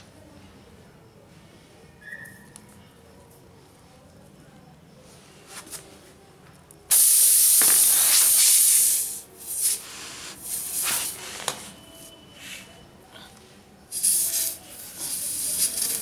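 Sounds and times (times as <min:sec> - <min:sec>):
air hissing out of tyre: 0:06.9 - 0:11.8, 0:13.9 - 0:16.0.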